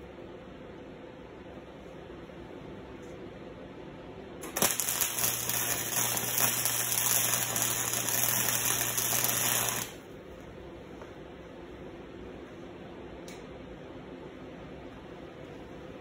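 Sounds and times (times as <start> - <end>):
steady low hum: 0.0 - 16.0
welding arc crackling: 4.4 - 10.0.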